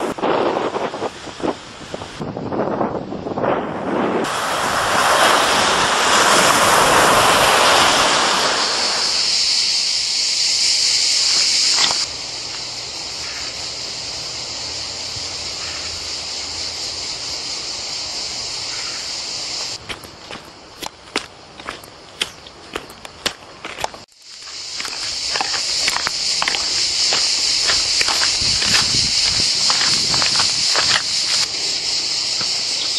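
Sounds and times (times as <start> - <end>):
cicada chorus: 0.0 - 3.5, 4.2 - 32.9
wind: 0.0 - 32.9
sea surf washing on beach: 4.0 - 12.2, 24.6 - 31.6.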